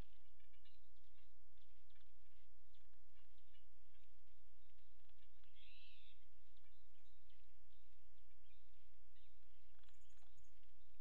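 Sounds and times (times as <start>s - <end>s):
faint high chirps: 2.7s - 11.0s
bird call: 5.4s - 7.4s.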